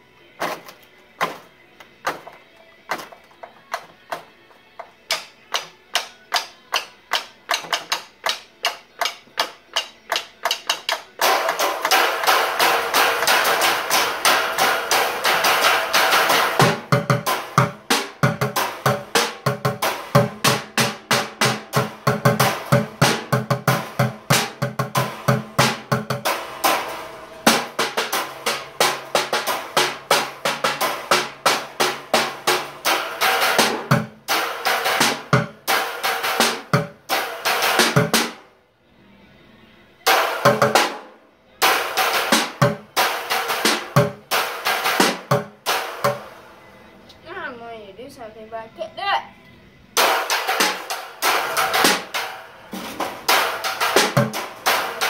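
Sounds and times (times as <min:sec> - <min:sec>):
song playing: 0:00.0 - 0:55.0
drumsticks striking a drum: 0:00.4 - 0:26.4, 0:50.0 - 0:55.0.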